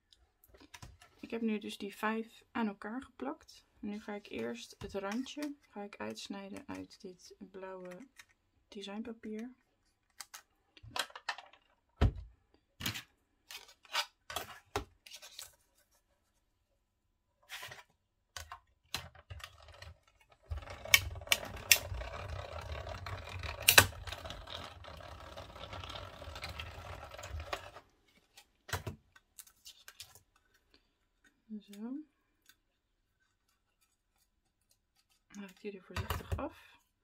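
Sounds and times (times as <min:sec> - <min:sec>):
cranked machine rumbling: 0:19.6 - 0:27.8.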